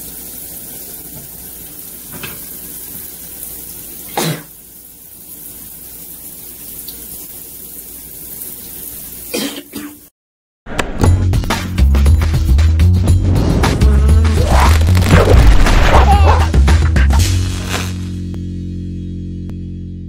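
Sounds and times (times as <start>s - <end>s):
shower water running: 0.0s - 10.1s, 13.1s - 18.1s
music: 10.7s - 20.0s.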